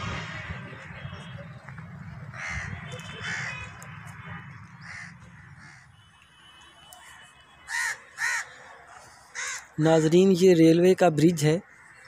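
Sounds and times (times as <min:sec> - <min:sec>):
crows cawing: 0:02.3 - 0:03.8, 0:04.7 - 0:06.1, 0:07.7 - 0:09.9.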